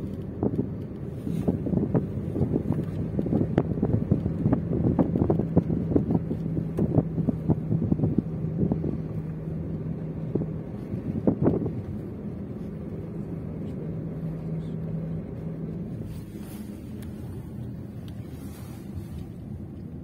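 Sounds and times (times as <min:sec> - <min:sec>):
wind buffeting microphone: 0:00.0 - 0:14.2
car engine and road noise: 0:00.0 - 0:20.0.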